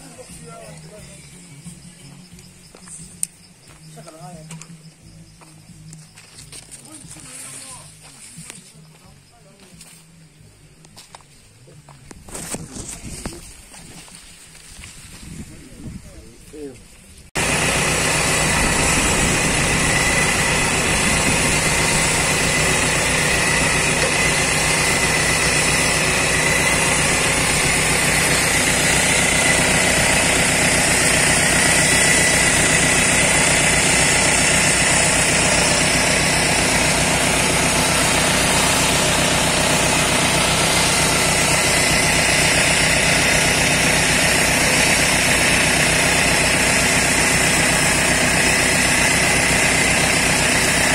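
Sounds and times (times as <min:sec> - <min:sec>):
low engine drone: 0:17.3 - 0:50.9
winch whining: 0:17.4 - 0:50.9.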